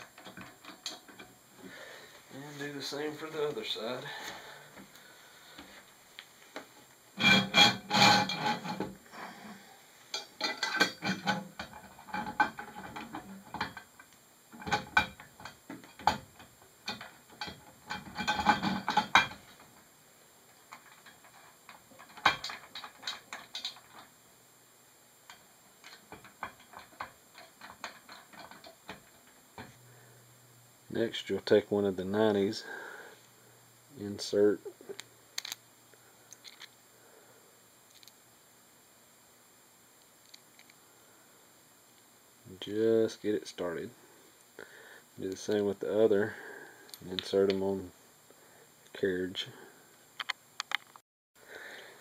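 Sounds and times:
metal parts clicking and rattling: 10.1 - 13.9, 14.5 - 19.7, 20.7 - 24.1, 25.3 - 29.7, 35.4 - 35.6, 36.3 - 36.7.

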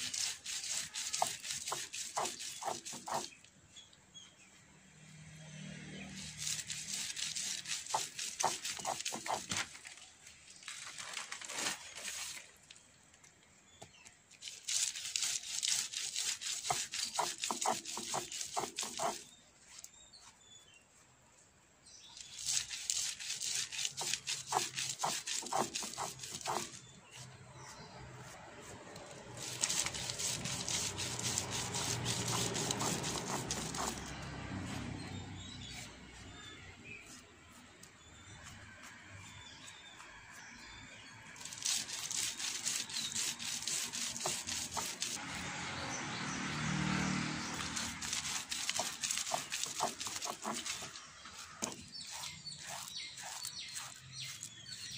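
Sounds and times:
stone roller crushing lentils: 0.0 - 3.4, 6.2 - 9.8, 14.3 - 19.4, 22.1 - 39.9, 41.3 - 45.2, 47.4 - 54.9.

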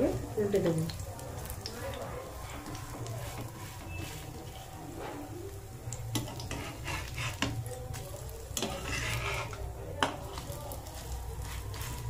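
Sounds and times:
spatula scraping frying pan: 2.6 - 5.3, 6.1 - 12.0.

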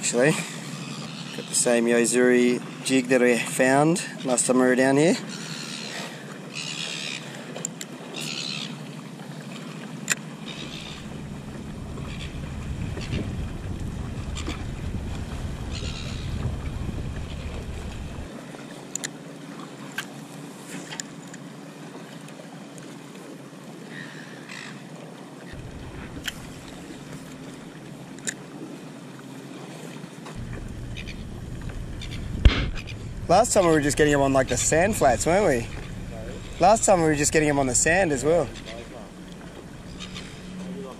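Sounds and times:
water sloshing around a paddleboard: 0.0 - 40.9
wind buffeting the microphone: 10.7 - 18.3, 25.5 - 27.8, 30.4 - 40.3.

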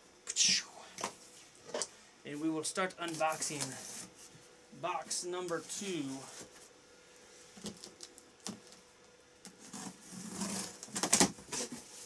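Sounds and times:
cardboard and tape crackling: 9.4 - 12.0
knife slitting packing tape: 9.6 - 11.8.

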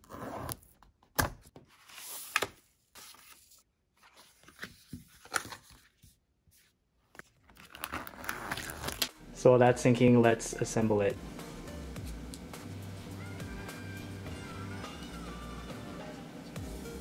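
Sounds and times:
paper tearing and rustling: 7.3 - 9.1.

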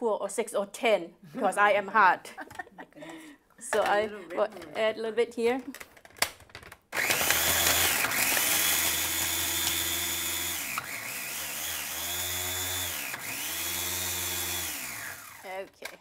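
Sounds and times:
electric food chopper whirring: 7.0 - 15.7.

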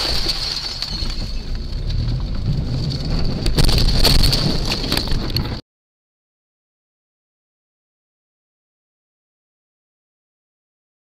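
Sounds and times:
road and engine rumble: 0.0 - 5.6
sharp clicks or rattles: 0.0 - 5.6.

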